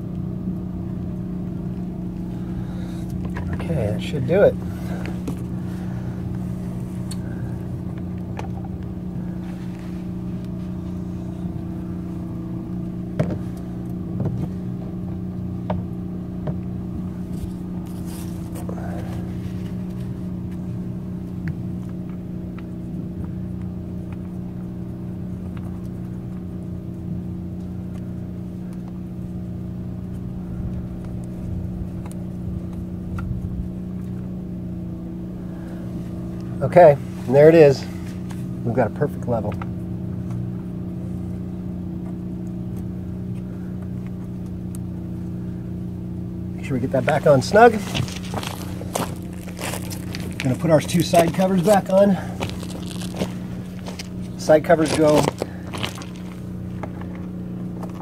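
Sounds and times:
engine running steadily: 0.0 - 58.0
hand handling knocks and rustles: 46.9 - 58.0.

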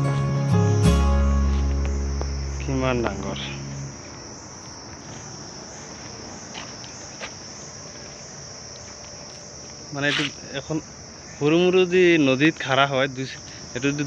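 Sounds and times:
background music: 0.0 - 3.9
high-pitched insect chorus: 0.0 - 14.0.

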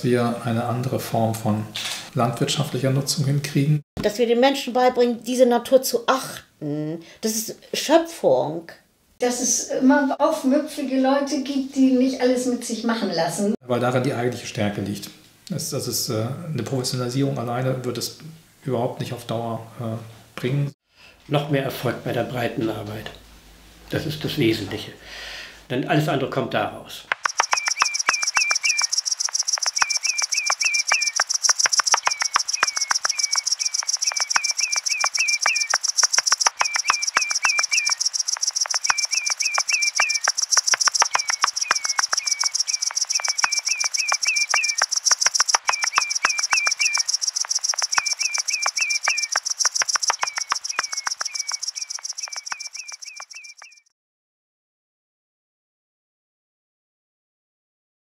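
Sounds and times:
high-pitched insect chorus: 27.1 - 53.8
sharp ticks: 27.1 - 53.8
bird chirping: 27.1 - 53.9.

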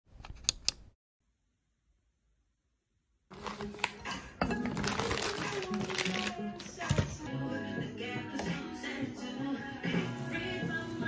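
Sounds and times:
plastic food bag crinkling: 3.3 - 7.1
background music: 3.3 - 11.0.

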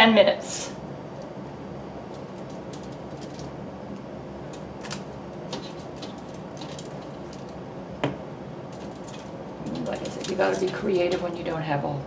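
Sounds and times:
steady low hum: 0.0 - 12.0
asparagus crinkling on foil: 2.1 - 7.6, 8.7 - 11.5.

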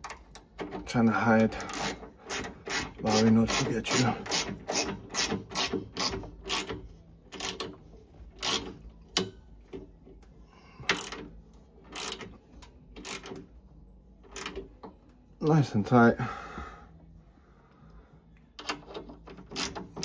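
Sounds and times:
hand ratchet clicking: 0.0 - 9.4, 10.9 - 13.5, 14.2 - 15.0, 18.6 - 20.0.

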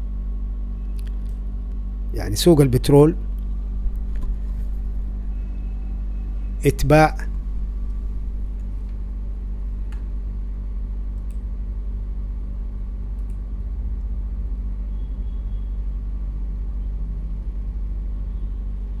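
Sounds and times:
faint hum: 0.0 - 19.0
steady low rumble: 0.0 - 19.0
faint clicks: 11.1 - 11.4, 13.1 - 13.4.

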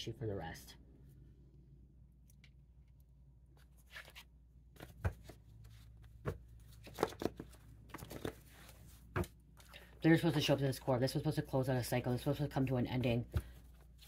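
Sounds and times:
cards tapping and rustling: 3.6 - 9.7.

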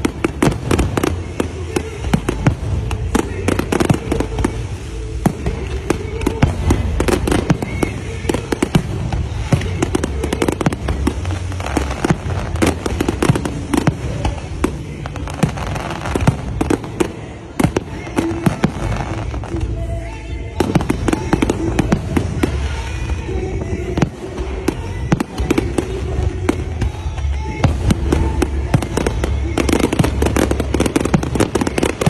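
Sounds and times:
fireworks bursting and crackling: 0.0 - 32.0.

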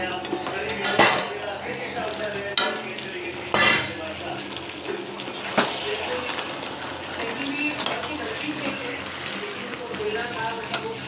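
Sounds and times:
food sizzling in a pan: 0.0 - 11.0
metal spatula stirring: 0.1 - 4.1
spatula scraping a pan: 0.2 - 4.0.

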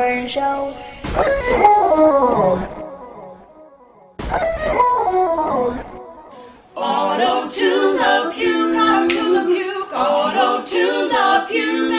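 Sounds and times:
group singing a cappella: 6.3 - 11.9.

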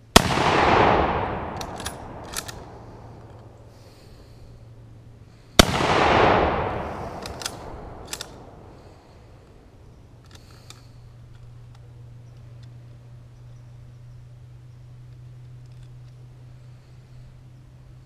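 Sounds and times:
rifle shot with echo: 0.1 - 3.7, 5.6 - 9.3
sharp clicks: 0.5 - 3.7, 5.6 - 9.0, 10.2 - 13.0.

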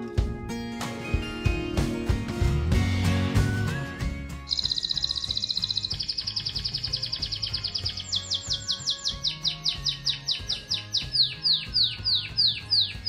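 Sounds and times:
canary singing: 3.5 - 13.0.

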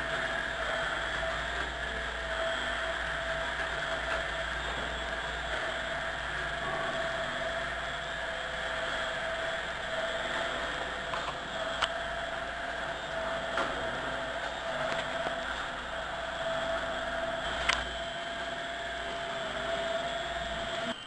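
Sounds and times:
food mixer whirring: 0.0 - 21.0
click: 11.1 - 12.0, 17.6 - 17.9.

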